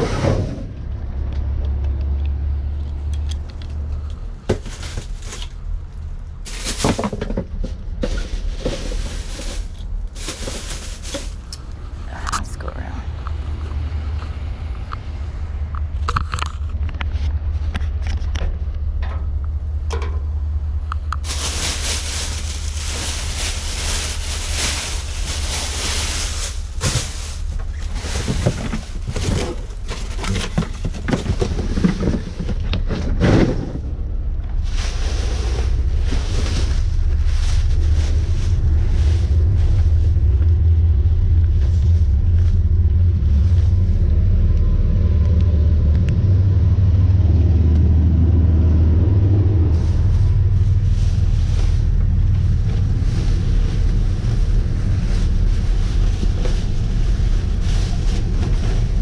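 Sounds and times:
steady low rumble: 0:00.0 - 0:59.0
plastic bags rustling: 0:04.4 - 0:12.0, 0:21.1 - 0:32.6, 0:34.6 - 0:40.3, 0:49.8 - 0:59.0
knocks and crackles: 0:20.9 - 0:34.6.

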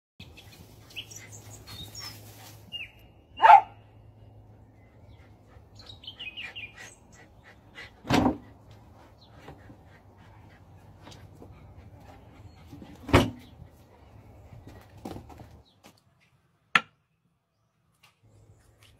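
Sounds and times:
small birds chirping: 0:00.2 - 0:08.0, 0:08.7 - 0:14.9
dog barking: 0:03.4 - 0:03.8.

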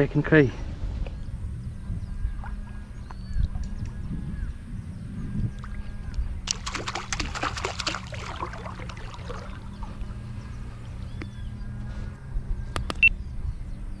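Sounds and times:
feet splashing in muddy water: 0:06.4 - 0:10.8.

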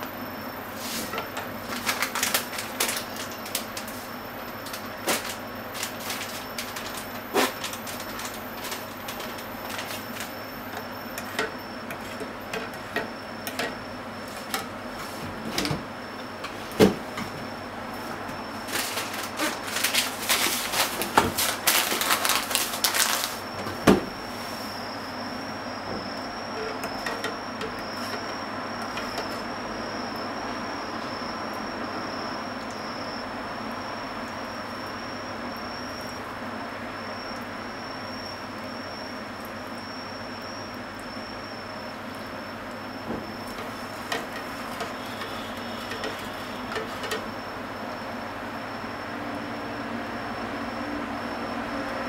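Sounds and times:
steady background hum: 0:00.0 - 0:52.0.

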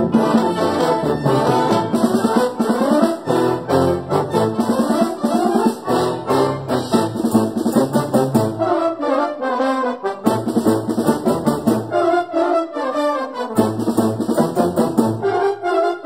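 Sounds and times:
percussion strikes: 0:00.0 - 0:08.7, 0:13.6 - 0:15.3
brass band playing: 0:00.0 - 0:16.0.

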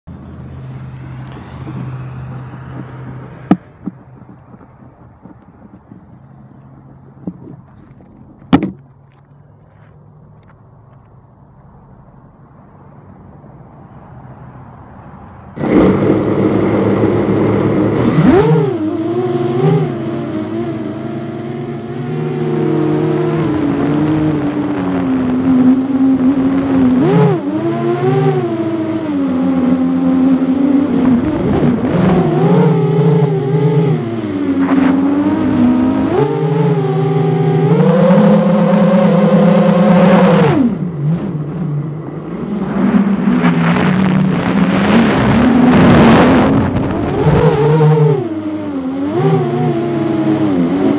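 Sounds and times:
drone motors buzzing whine: 0:15.6 - 0:50.9.

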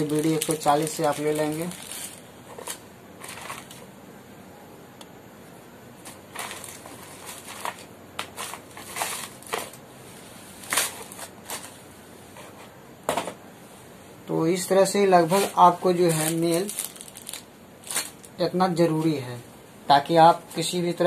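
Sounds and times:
plastic packets crinkling: 0:00.0 - 0:03.9, 0:06.1 - 0:09.8, 0:15.4 - 0:18.4.

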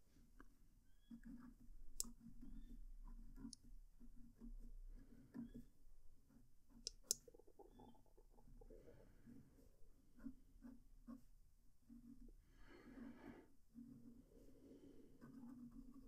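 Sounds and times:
sharp clicks: 0:06.9 - 0:07.3.

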